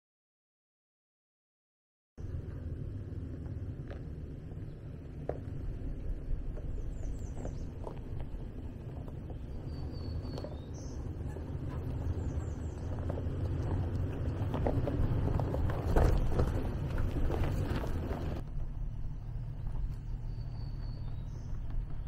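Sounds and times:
low engine rumble: 0:02.2 - 0:22.0
tyres crunching on rocks: 0:03.4 - 0:18.4.

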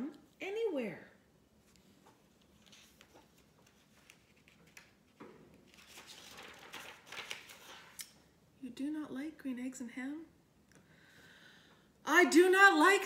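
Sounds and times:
book pages rustling: 0:01.6 - 0:08.2.

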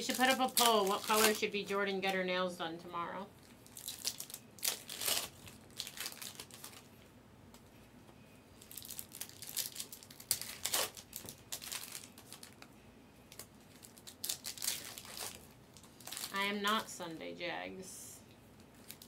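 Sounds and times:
foil wrapper crinkling and tearing: 0:00.0 - 0:01.5, 0:03.6 - 0:06.9, 0:08.6 - 0:12.7, 0:13.3 - 0:16.5, 0:18.7 - 0:19.0.

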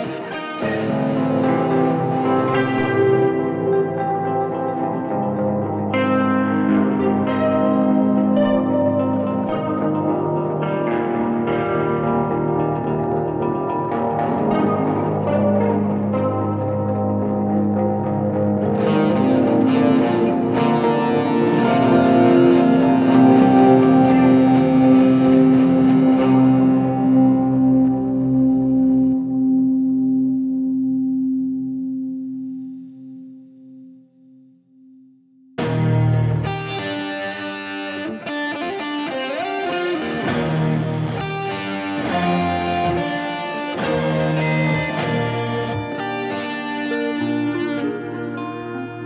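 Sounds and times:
background music with held notes: 0:00.0 - 0:32.8.

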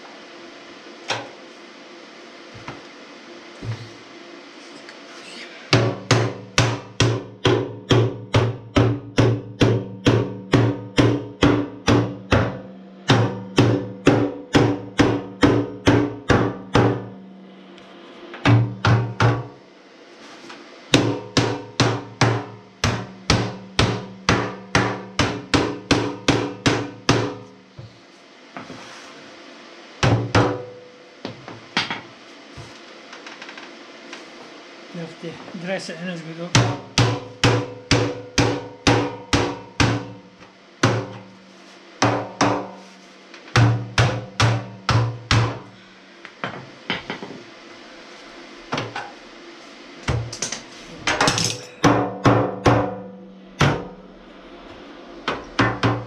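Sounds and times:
hammer striking hollow metal tank: 0:05.7 - 0:17.4, 0:18.4 - 0:19.6, 0:20.9 - 0:27.6, 0:30.0 - 0:30.8, 0:36.5 - 0:41.3, 0:42.0 - 0:42.8, 0:43.5 - 0:45.7, 0:50.1 - 0:54.0, 0:55.2 - 0:56.0.

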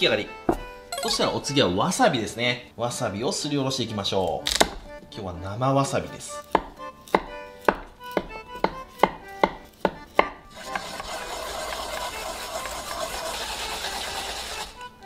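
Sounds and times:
grating on metal grater: 0:10.6 - 0:14.7.

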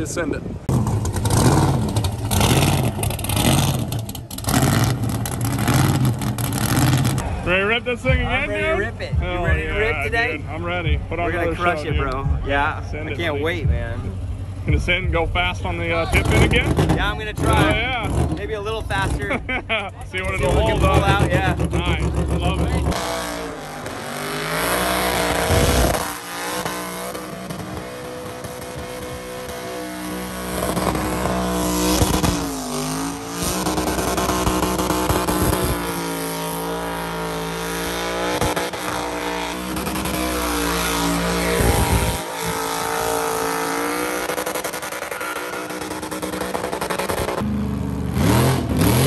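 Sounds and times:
truck engine revving: 0:00.0 - 0:49.0
tires squealing: 0:00.7 - 0:08.7, 0:20.2 - 0:47.4.

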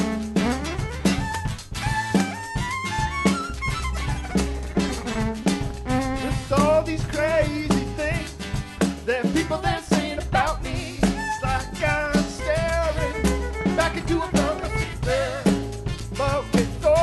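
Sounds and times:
violin playing lively melody: 0:00.0 - 0:07.6, 0:10.7 - 0:15.4
drum kit beat: 0:00.0 - 0:17.0.

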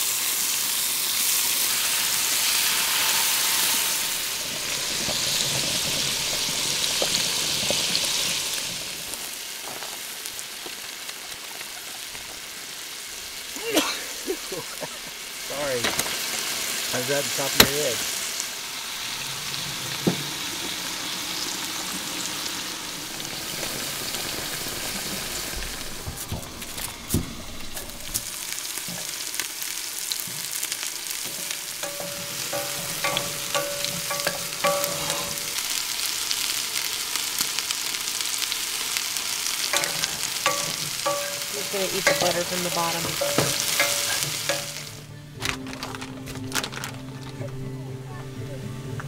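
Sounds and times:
food sizzling in a frying pan: 0:00.0 - 0:46.0
utensil scraping a pan: 0:31.2 - 0:35.7.

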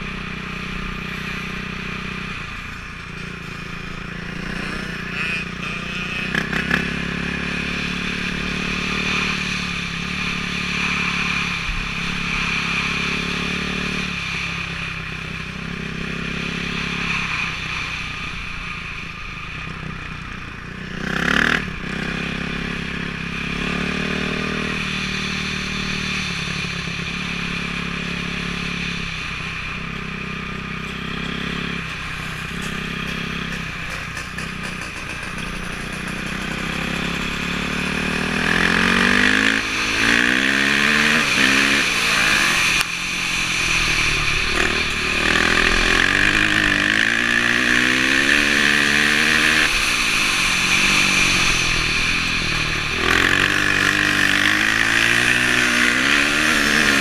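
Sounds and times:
dirt bike engine revving: 0:00.0 - 0:17.9, 0:20.6 - 0:57.0.

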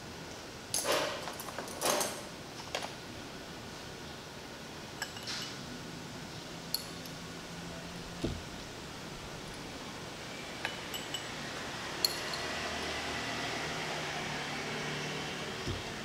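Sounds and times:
glassware clinking: 0:05.0 - 0:05.6, 0:10.6 - 0:11.4, 0:12.0 - 0:12.6.

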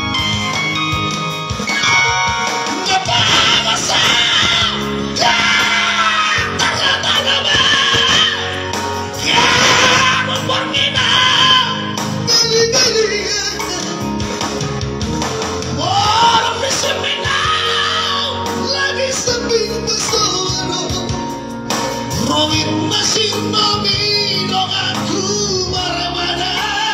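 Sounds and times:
backing music: 0:00.0 - 0:26.9
men singing long notes: 0:02.8 - 0:12.0, 0:15.8 - 0:21.1.

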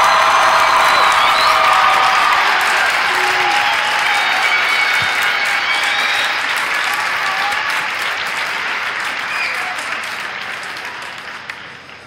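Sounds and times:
crowd cheering and shouting: 0:00.0 - 0:08.1
crowd applauding: 0:00.0 - 0:12.0.

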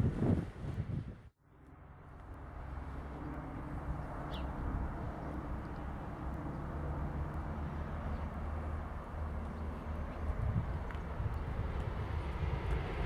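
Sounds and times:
bird chirp: 0:03.2 - 0:04.6.

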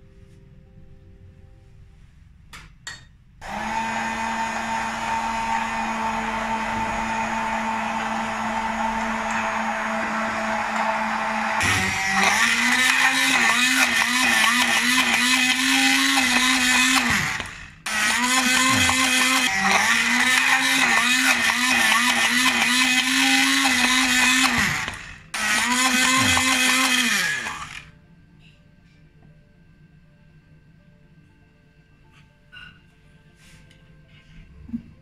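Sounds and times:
immersion blender whirring: 0:03.4 - 0:27.9.

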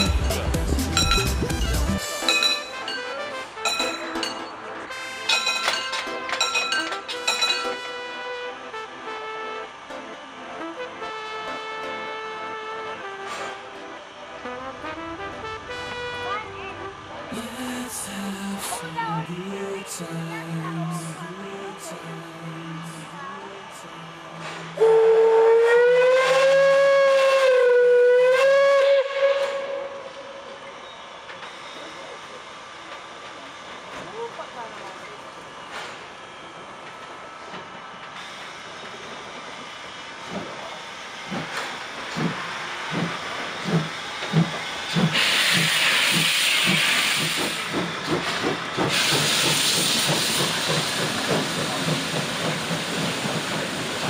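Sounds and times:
locomotive chuffing beat: 0:00.0 - 0:02.1, 0:40.2 - 0:54.0
train coaches rolling: 0:00.0 - 0:08.4, 0:09.6 - 0:54.0
steam locomotive hiss: 0:17.3 - 0:54.0
steam locomotive whistle blast: 0:24.4 - 0:32.0, 0:45.1 - 0:47.7, 0:48.9 - 0:51.4.

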